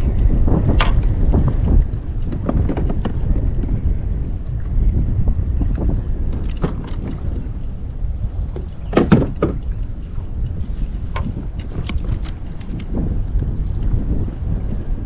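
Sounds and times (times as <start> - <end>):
water lapping: 0.0 - 15.0
wind rumbling on microphone: 0.0 - 15.0
small knocks on hull: 0.6 - 3.8, 5.7 - 7.4, 8.5 - 10.2.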